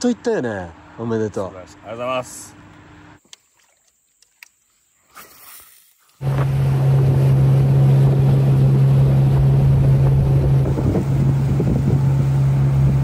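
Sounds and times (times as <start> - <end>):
water rushing past hull: 5.2 - 13.0
outboard motor running: 6.2 - 13.0
wind on microphone: 6.2 - 13.0.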